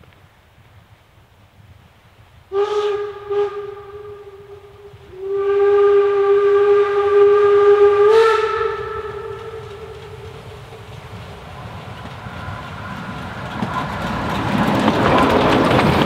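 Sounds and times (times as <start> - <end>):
steam whistle blasts: 2.5 - 10.5.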